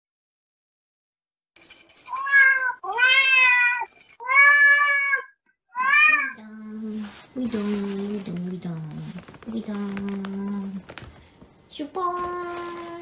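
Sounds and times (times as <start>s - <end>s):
cat meowing: 2.2s - 6.4s.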